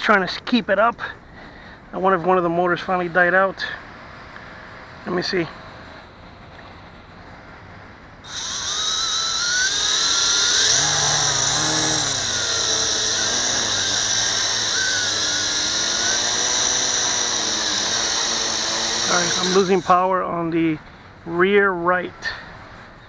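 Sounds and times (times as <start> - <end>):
quadcopter motors whining: 8.2 - 20.2.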